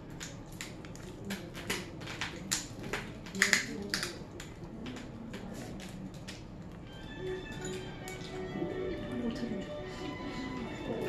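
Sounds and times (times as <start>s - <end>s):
crab shells cracking: 0.1s - 6.8s.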